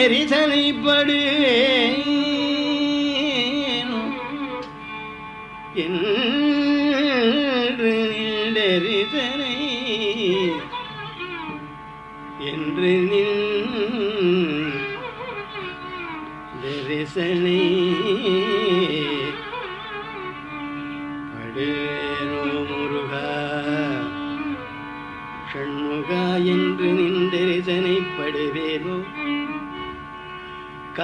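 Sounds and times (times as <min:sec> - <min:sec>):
steady drone: 0:16.1 - 0:31.0
person singing with sliding ornaments: 0:16.6 - 0:17.0.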